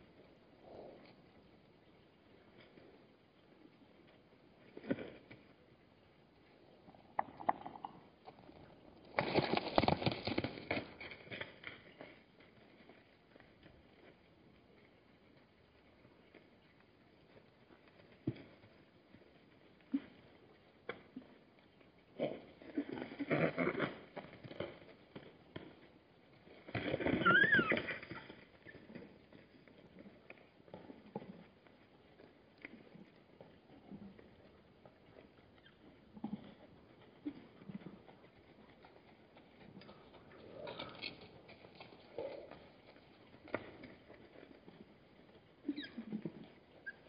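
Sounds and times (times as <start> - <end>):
hooves clattering on hard ground: 0.0 - 47.0
zebra squeal: 27.2 - 27.9.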